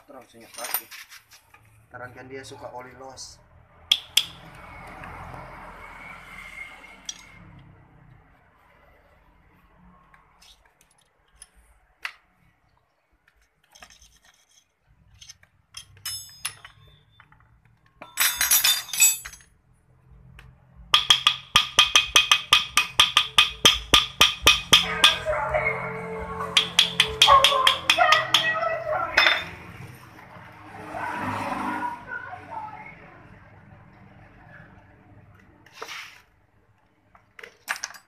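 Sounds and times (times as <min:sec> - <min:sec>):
metal on metal clatter: 0:13.6 - 0:17.3, 0:18.0 - 0:19.5, 0:29.2 - 0:29.6
hammer ringing on metal: 0:21.0 - 0:25.3, 0:26.4 - 0:28.6.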